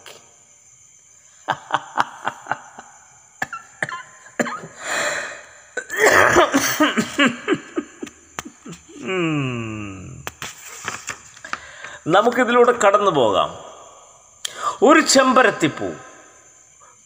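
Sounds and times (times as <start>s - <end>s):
man laughing: 1.4s - 4.8s, 5.8s - 10.2s
long falling vocal tone: 9.0s - 10.2s.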